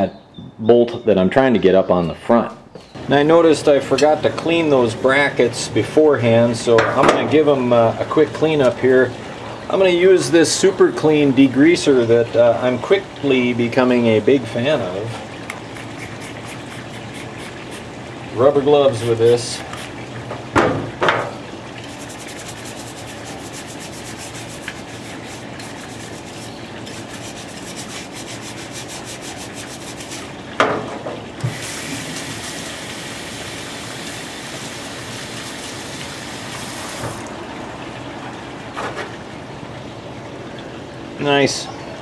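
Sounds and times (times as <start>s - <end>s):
water running into sink: 3.1s - 39.3s
brush scrubbing metal: 15.2s - 17.9s, 18.9s - 20.0s, 21.8s - 30.4s
knock: 20.6s - 21.3s.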